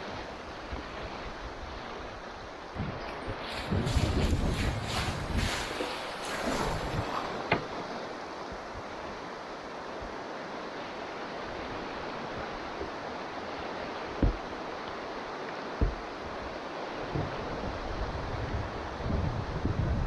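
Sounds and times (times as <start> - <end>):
river water rushing: 0.0 - 20.0
dull thumps: 14.2 - 14.5, 15.8 - 16.1.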